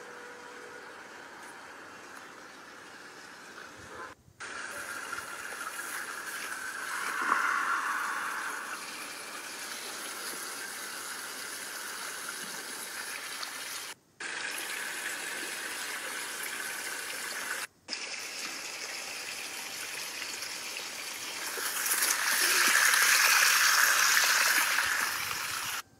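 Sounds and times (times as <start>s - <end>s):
running water rushing: 4.4s - 14.6s.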